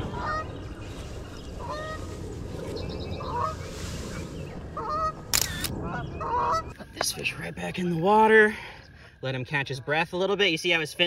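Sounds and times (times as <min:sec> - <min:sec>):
geese honking: 0:00.0 - 0:00.8, 0:01.4 - 0:08.0
steady low rumble: 0:00.0 - 0:11.0.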